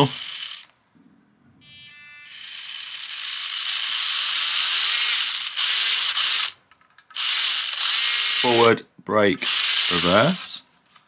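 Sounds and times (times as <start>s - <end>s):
small electric motor whirring: 0.0s - 0.7s, 1.7s - 6.6s, 7.2s - 8.7s, 9.4s - 10.4s.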